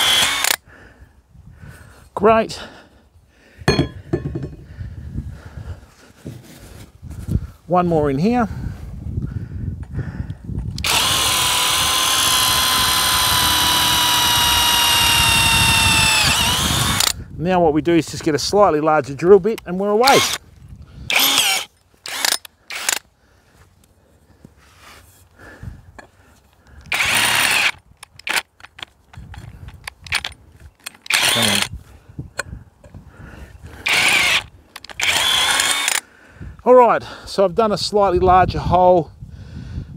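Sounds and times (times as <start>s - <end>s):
cordless drill drilling: 0.0s - 0.6s, 10.8s - 17.2s, 20.0s - 20.4s, 21.1s - 23.0s, 26.9s - 28.4s, 30.9s - 31.7s, 33.8s - 36.0s.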